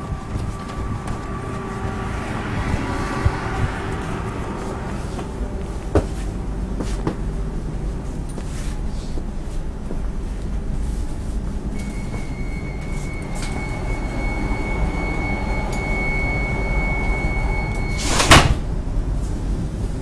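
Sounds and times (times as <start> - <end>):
train door warning tone: 0.0 - 3.4, 11.6 - 18.5
low rumble: 0.0 - 18.0
sliding doors shutting thump: 17.9 - 18.7.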